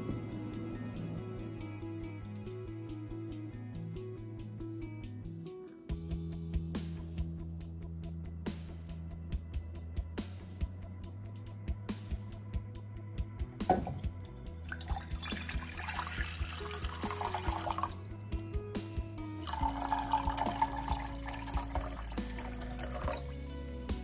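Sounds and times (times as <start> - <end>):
background music: 0.0 - 24.0
water pouring into metal saucepan: 13.7 - 18.0, 19.4 - 23.4.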